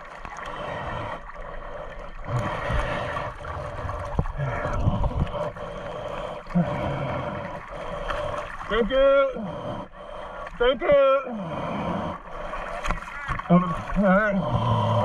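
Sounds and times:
water splashing and gurgling: 0.0 - 15.0.

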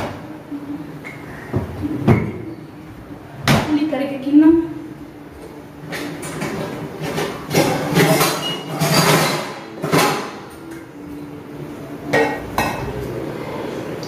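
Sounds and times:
kitchen things clattering: 5.9 - 10.8.

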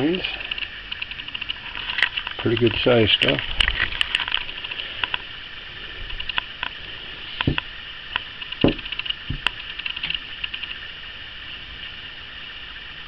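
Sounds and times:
steady hiss: 0.0 - 13.0
dull thump: 7.4 - 7.7, 8.6 - 9.6
soft knocks and clicks: 7.4 - 7.7, 8.4 - 10.6.

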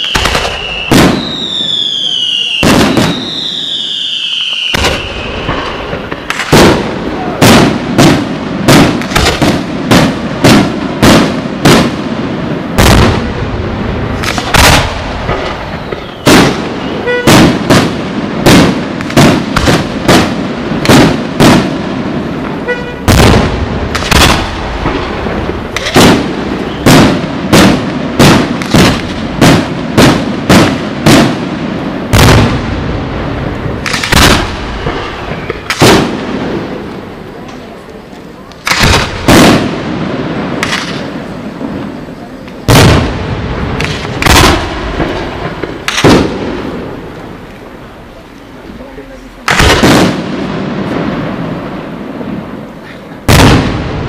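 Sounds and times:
falling firework whistle: 0.0 - 7.5, 14.4 - 17.7, 25.8 - 27.2, 34.1 - 35.7
firework shells booming: 0.0 - 54.0.

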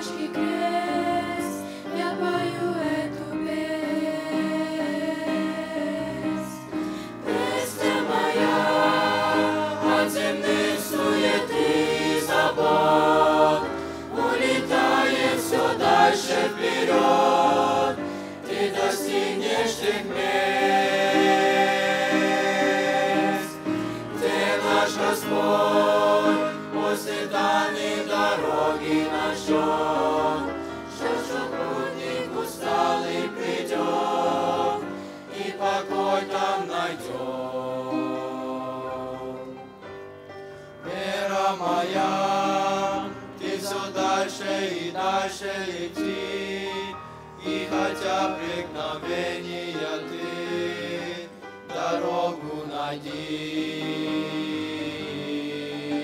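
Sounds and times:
choir singing a hymn: 0.0 - 56.0.

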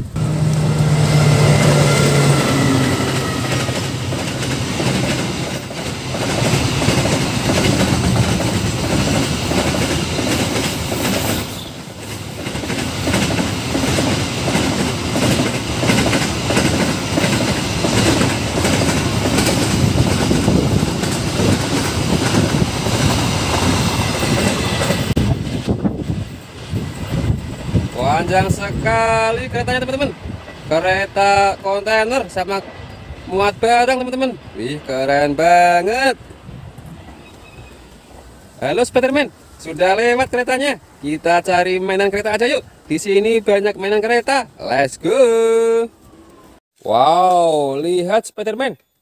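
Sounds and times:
locomotive engine drone: 0.0 - 9.4
freight wagons rumbling: 0.0 - 42.6
wheels clickety-clack on rail joints: 0.1 - 39.2.

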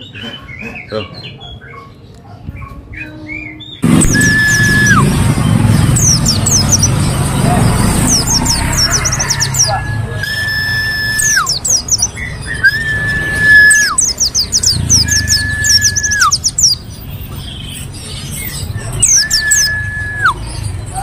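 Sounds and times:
bird twittering chirps: 0.0 - 21.0
bird whistle dropping in pitch: 4.0 - 5.0.

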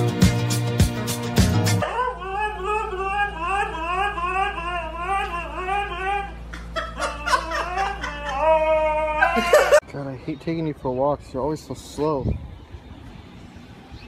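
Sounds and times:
dog whine-howling: 1.8 - 6.4.

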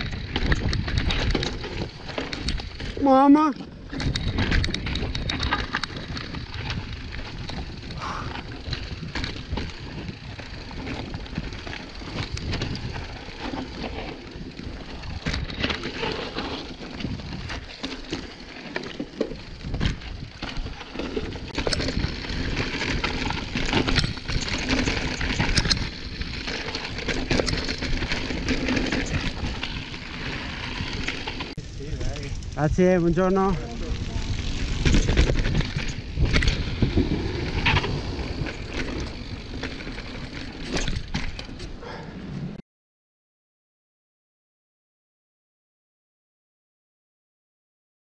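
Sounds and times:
bike rattling over rocks: 0.0 - 41.8
wind on microphone: 33.6 - 39.6.

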